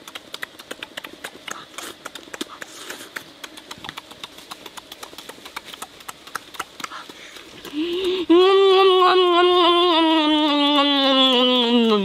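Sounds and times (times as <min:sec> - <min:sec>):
lip smacks and chewing: 0:00.0 - 0:08.3.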